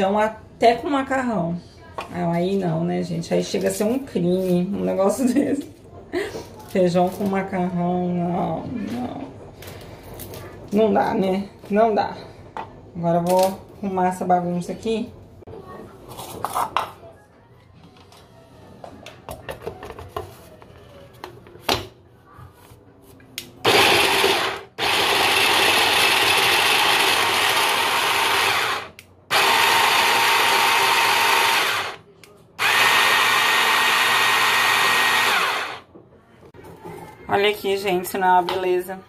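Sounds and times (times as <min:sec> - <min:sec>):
blender chopping garlic: 0:23.7 - 0:32.0, 0:32.6 - 0:35.8.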